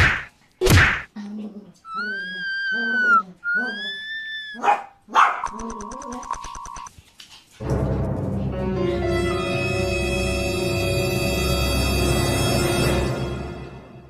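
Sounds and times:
sharp whack: 0:00.0 - 0:01.1
dogs whining: 0:01.9 - 0:04.8
dog barking: 0:04.6 - 0:05.7.

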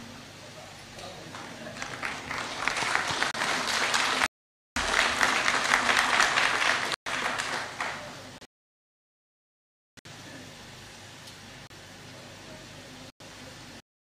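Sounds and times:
crowd applauding: 0:01.3 - 0:08.4.

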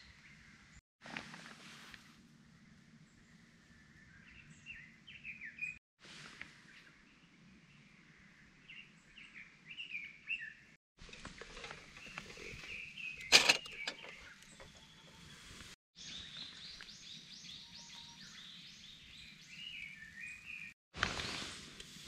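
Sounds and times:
small birds chirping: 0:02.5 - 0:05.8, 0:06.6 - 0:20.8
metallic clack of sandwich maker: 0:13.2 - 0:14.2.

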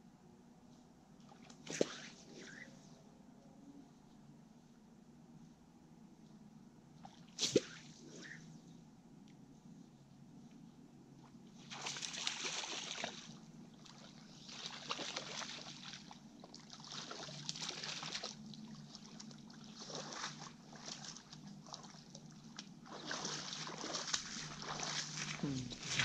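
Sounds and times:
water splashing and sloshing: 0:01.2 - 0:02.7, 0:06.9 - 0:08.4, 0:11.2 - 0:26.0.

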